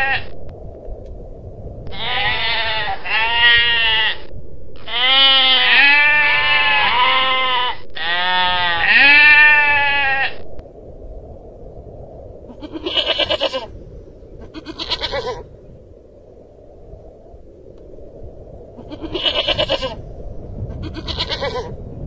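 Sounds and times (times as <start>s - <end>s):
goral bleating: 0.0s - 0.3s, 1.9s - 10.4s, 12.5s - 13.7s, 14.5s - 15.5s, 18.8s - 20.0s, 20.7s - 21.8s.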